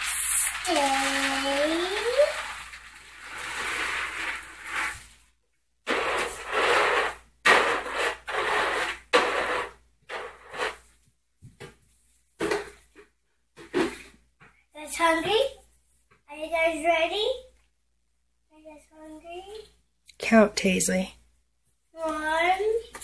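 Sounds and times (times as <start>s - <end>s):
dry kibble spilling onto floor: 0.0s - 5.2s
container scraping kibble: 0.0s - 5.3s, 5.9s - 10.9s.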